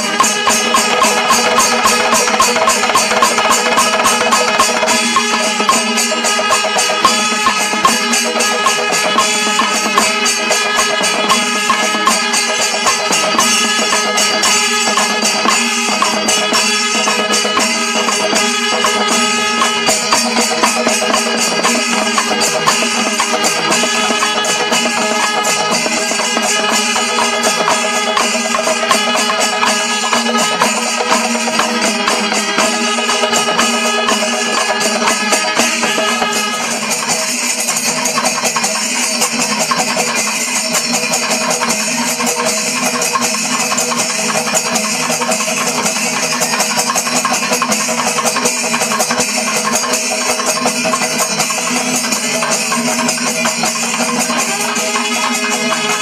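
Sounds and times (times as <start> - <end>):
horns holding notes: 0.0 - 37.9, 52.7 - 56.0
drums beating fast rhythm: 0.0 - 56.0
hand cymbals: 0.0 - 56.0.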